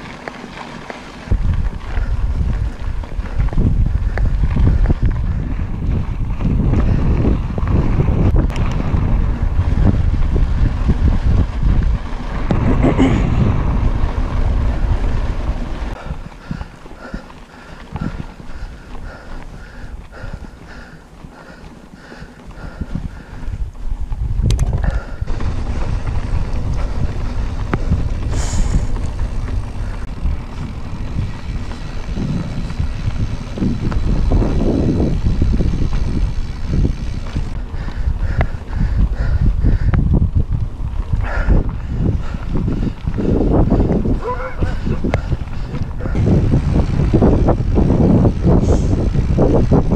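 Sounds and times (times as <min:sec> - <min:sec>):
bike tyres rumbling on dirt: 0:00.0 - 0:49.9
wind buffeting microphone: 0:00.0 - 0:49.9
bike rattles and knocks: 0:21.5 - 0:49.9.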